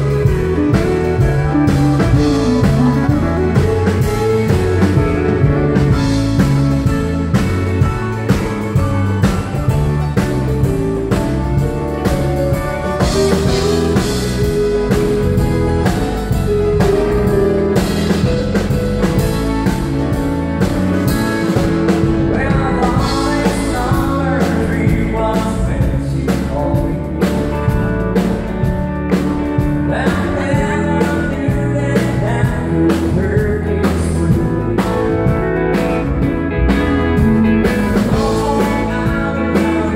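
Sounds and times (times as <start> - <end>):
live country band: 0.0 - 39.9
man singing: 22.0 - 28.1, 29.6 - 35.7, 37.8 - 39.9.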